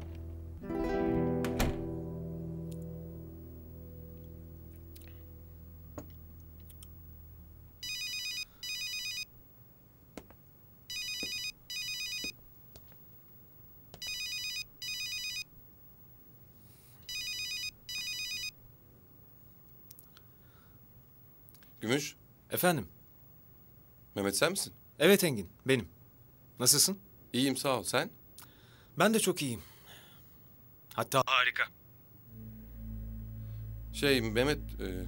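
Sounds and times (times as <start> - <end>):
soft music: 0.0 - 7.8, 32.3 - 35.0
mobile phone ringing: 7.8 - 9.3, 10.9 - 12.3, 14.0 - 15.4, 17.1 - 18.5.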